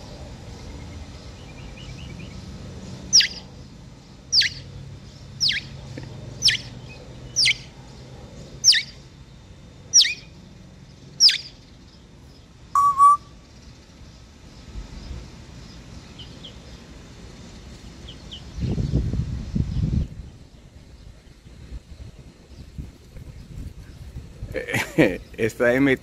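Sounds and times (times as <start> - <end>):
parrot whistling: 8.7 - 8.9, 10.0 - 10.2, 12.8 - 13.3
low two-part parrot note: 12.8 - 13.2.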